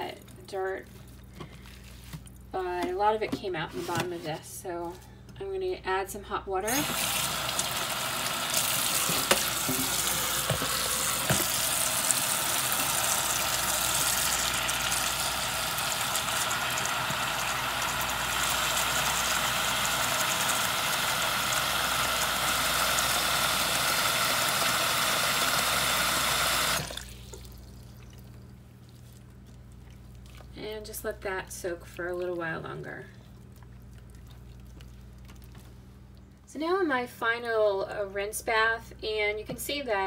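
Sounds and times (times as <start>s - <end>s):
tap water filling plastic tub: 6.8s - 28.2s
tap shut off: 9.0s - 11.6s.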